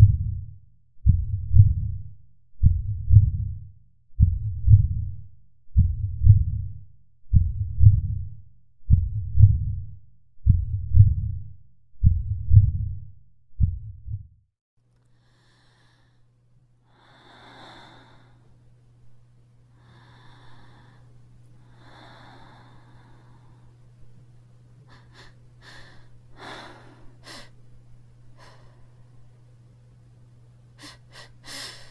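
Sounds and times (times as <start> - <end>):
heartbeat thumps: 0.0 - 2.0, 2.6 - 3.6, 4.2 - 5.2, 5.8 - 8.3, 8.9 - 11.4, 12.0 - 13.0, 13.6 - 14.4
faint low hum: 0.0 - 31.9
rasping breaths: 15.1 - 18.5, 19.7 - 23.8, 24.8 - 27.6.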